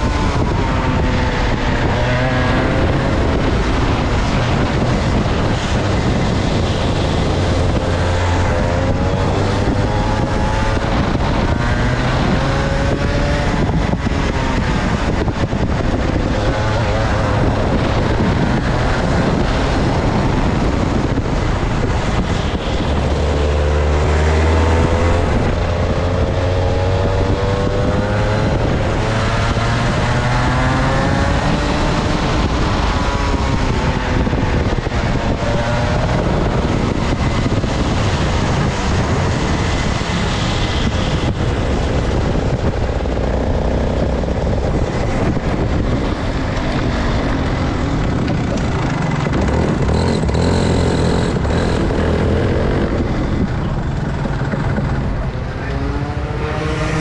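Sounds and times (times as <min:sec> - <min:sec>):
kart engine revving: 0:22.9 - 0:57.0.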